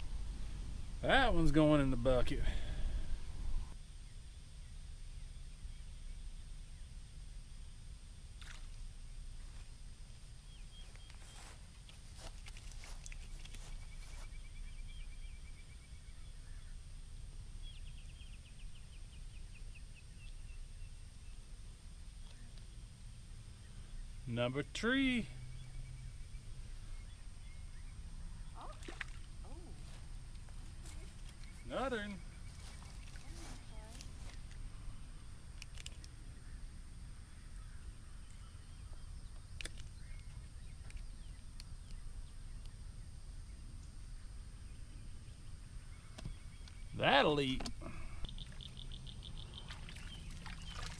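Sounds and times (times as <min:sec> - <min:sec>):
low steady rumble: 0:00.0 - 0:10.8
faint bird chirps: 0:10.4 - 0:16.9, 0:23.6 - 0:35.1, 0:35.9 - 0:50.9.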